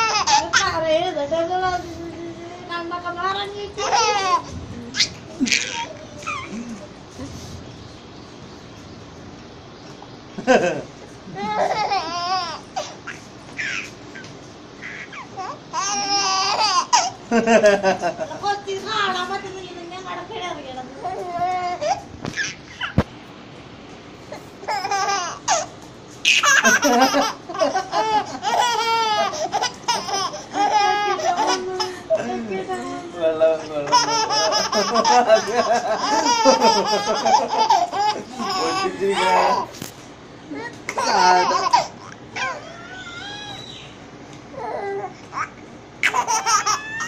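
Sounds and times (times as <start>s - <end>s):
baby laughing: 0.0s - 0.8s, 3.8s - 7.0s, 10.5s - 17.8s, 21.0s - 23.0s, 24.6s - 32.4s, 33.6s - 39.7s, 40.9s - 43.6s, 44.6s - 47.0s.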